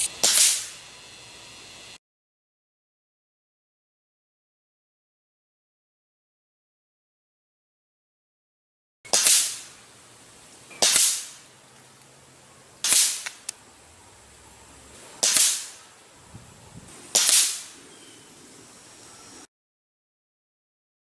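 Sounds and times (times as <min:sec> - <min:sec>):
air rifle firing cracks: 0:00.0 - 0:00.8, 0:09.1 - 0:09.8, 0:10.7 - 0:11.5, 0:12.8 - 0:13.6, 0:15.1 - 0:16.0, 0:17.0 - 0:17.9.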